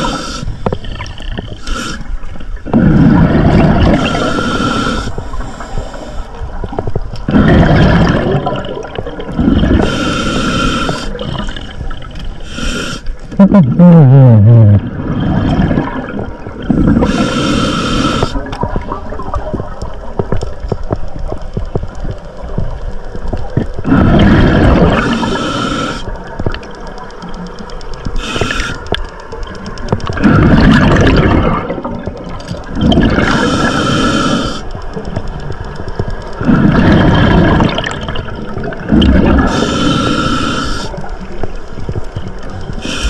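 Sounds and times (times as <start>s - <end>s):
regulator breathing hiss: 0.0s - 0.8s, 1.4s - 2.3s, 3.9s - 6.5s, 9.6s - 11.5s, 12.4s - 13.3s, 16.8s - 18.5s, 24.9s - 26.4s, 28.1s - 29.3s, 33.2s - 35.1s, 39.4s - 41.4s, 42.8s - 43.0s
exhaled bubbles rumbling: 0.0s - 5.4s, 6.3s - 10.0s, 11.1s - 12.4s, 13.3s - 25.5s, 29.1s - 43.0s.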